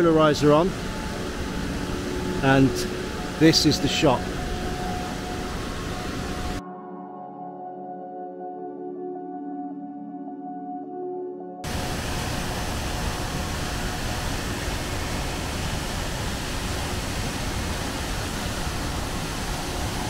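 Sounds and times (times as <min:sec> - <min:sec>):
waterfall rushing through gorge: 0:00.0 - 0:06.6, 0:11.6 - 0:20.0.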